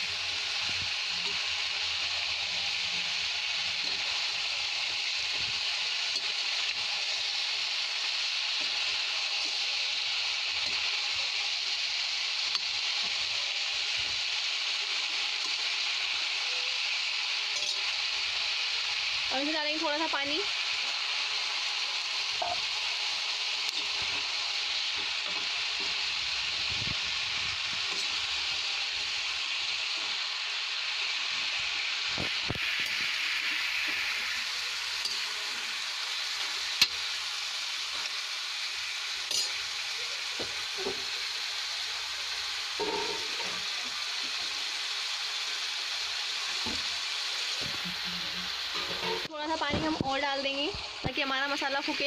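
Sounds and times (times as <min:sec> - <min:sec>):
vegetables sizzling in oil: 0:00.0 - 0:52.0
metal spatula clinking on pan: 0:17.6 - 0:17.9, 0:39.3 - 0:39.6.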